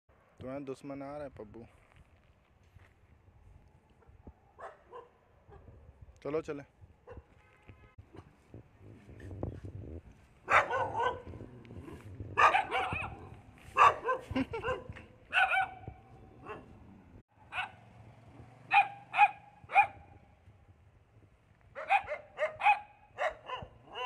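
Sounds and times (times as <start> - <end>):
dogs barking: 4.0 - 5.7, 10.4 - 16.8, 17.4 - 17.8, 18.7 - 20.1, 21.8 - 24.0.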